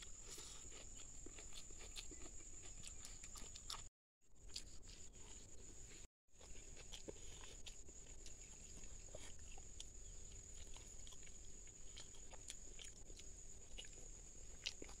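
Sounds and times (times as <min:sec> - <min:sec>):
man chewing food: 0:00.0 - 0:15.0.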